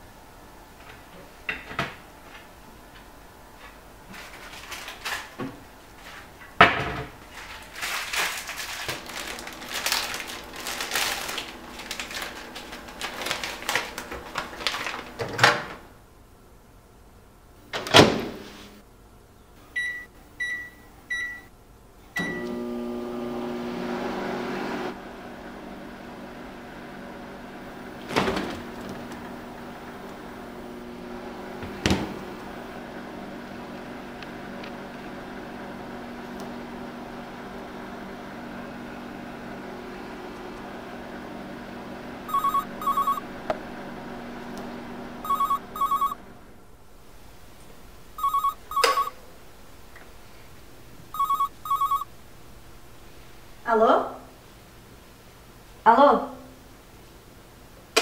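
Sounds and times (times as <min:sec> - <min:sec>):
microwave oven humming: 0:08.5 - 0:16.1, 0:19.6 - 0:55.8
microwave keypad beeping: 0:19.8 - 0:21.5, 0:22.2 - 0:22.5, 0:42.3 - 0:43.3, 0:45.2 - 0:46.2, 0:48.2 - 0:49.2, 0:51.1 - 0:52.1
telephone ringing: 0:42.3 - 0:43.3, 0:45.2 - 0:46.2, 0:48.2 - 0:49.2, 0:51.1 - 0:52.1.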